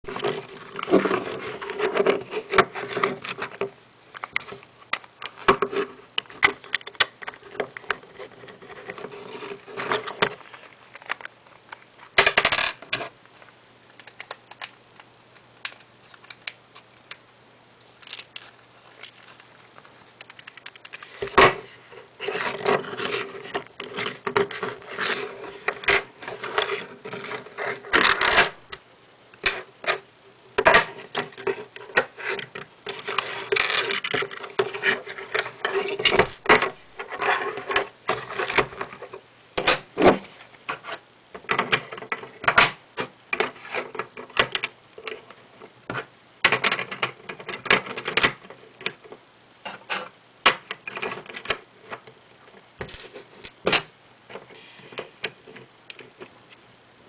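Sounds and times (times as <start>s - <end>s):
plastic bricks clicking: 18.0s - 19.3s.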